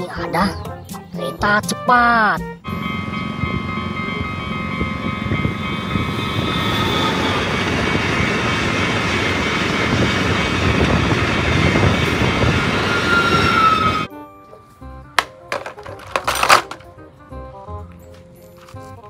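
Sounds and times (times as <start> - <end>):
steady high tones: 2.6 - 10.6
train wheels rumbling on rails: 2.7 - 14.1.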